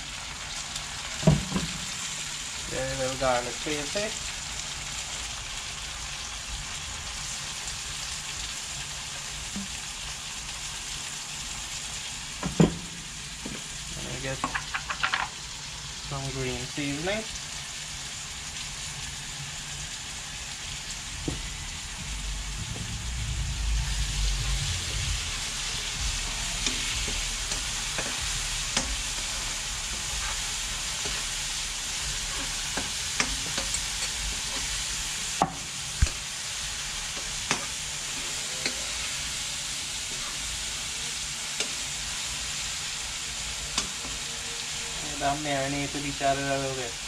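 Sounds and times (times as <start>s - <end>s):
food sizzling in hot oil: 0.0s - 47.0s.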